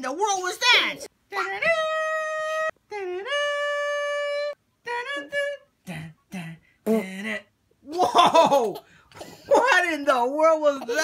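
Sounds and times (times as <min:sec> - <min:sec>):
hummed and raspy mouth noises: 0:02.4 - 0:07.6.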